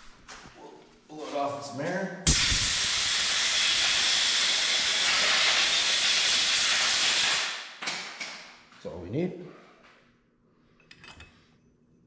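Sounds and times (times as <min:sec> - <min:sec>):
compressed air hissing: 0:02.3 - 0:07.7.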